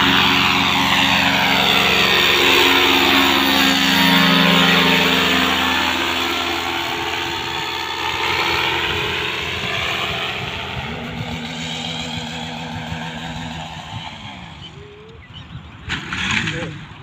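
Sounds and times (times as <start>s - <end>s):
microlight engine droning: 0.0s - 17.0s.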